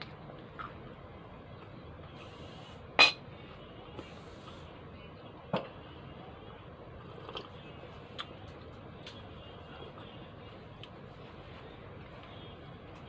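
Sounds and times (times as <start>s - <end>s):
sipping and chewing mouth sounds: 7.0s - 8.4s.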